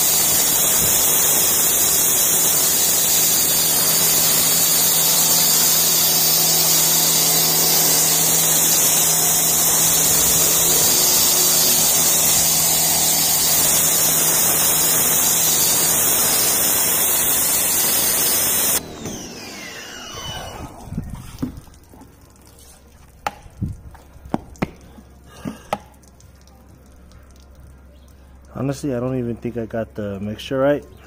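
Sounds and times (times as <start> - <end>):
pressure washer spray hissing: 0.0 - 20.6
pump motor humming: 0.0 - 28.7
sharp clicks and knocks: 21.4 - 26.6.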